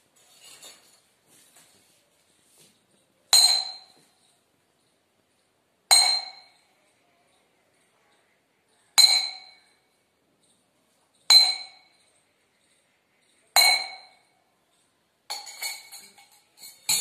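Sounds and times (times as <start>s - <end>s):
light glass clinks: 3.3s - 4.9s, 5.9s - 7.0s, 9.0s - 9.8s, 10.4s - 12.3s, 13.5s - 17.0s.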